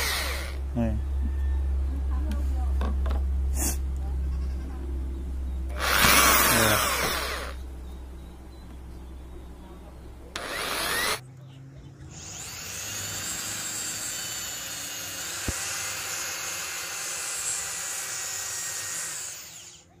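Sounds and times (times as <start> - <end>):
electric drill boring into pipe: 0.0 - 0.6, 5.8 - 7.6, 10.4 - 11.2, 12.2 - 19.8.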